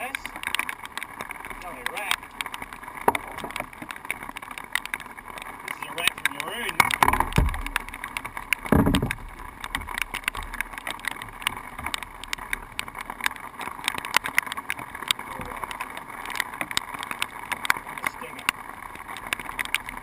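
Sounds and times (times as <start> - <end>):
faint steady hiss: 0.0 - 20.0
small clicks and taps on canoe: 0.0 - 20.0
dull thump: 6.9 - 7.8, 8.6 - 9.9.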